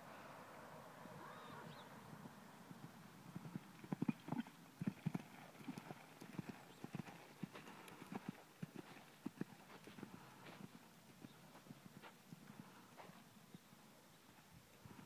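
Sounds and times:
horse hoofbeats on sand: 3.4s - 13.2s.

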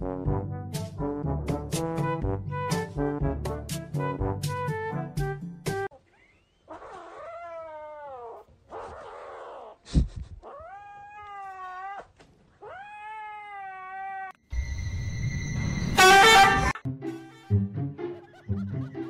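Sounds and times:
kitten yowling meows: 6.7s - 8.4s, 10.4s - 14.4s.

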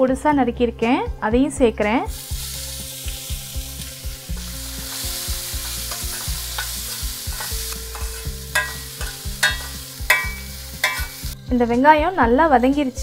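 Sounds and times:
onions sizzling in oil: 2.0s - 11.4s
metal spatula scraping pan: 4.4s - 11.4s.

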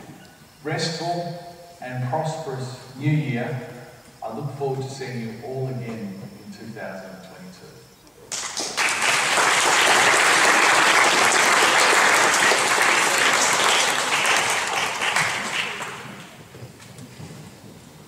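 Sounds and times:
audience applauding: 8.3s - 16.4s.

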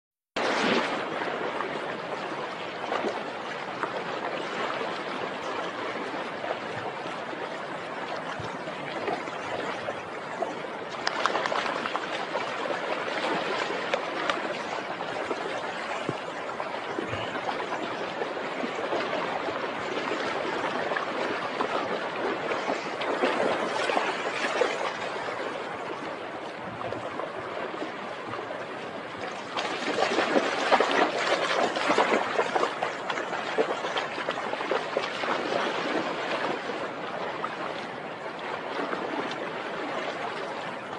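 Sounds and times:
dog splashing through water: 10.9s - 14.6s, 29.4s - 36.7s
river water rushing over rocks: 28.7s - 38.2s.

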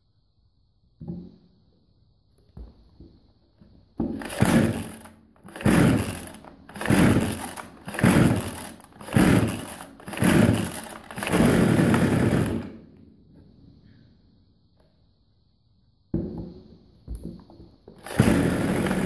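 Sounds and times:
chainsaw pull-start cord: 4.0s - 12.8s, 18.0s - 19.0s.

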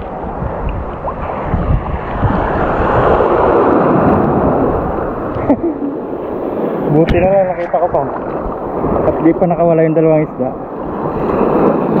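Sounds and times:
wave surging over reef: 0.0s - 12.0s
wind buffeting microphone: 0.0s - 12.0s.

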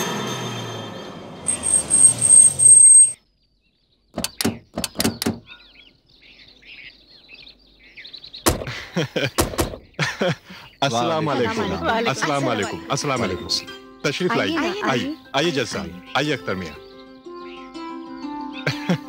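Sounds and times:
steady high tone: 0.0s - 3.2s
birds chirping faintly: 0.4s - 19.0s
car doors clicking open: 4.2s - 5.4s
car door thunk: 8.5s - 8.8s.

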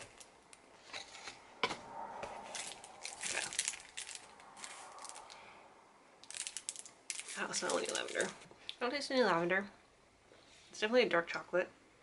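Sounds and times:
foil wrapper crinkling and tearing: 2.5s - 5.4s, 6.2s - 8.4s.

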